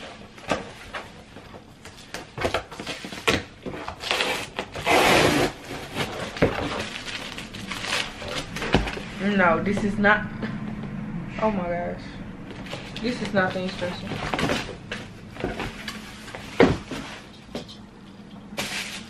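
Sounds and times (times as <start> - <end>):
plastic bag crinkling: 5.9 - 9.2.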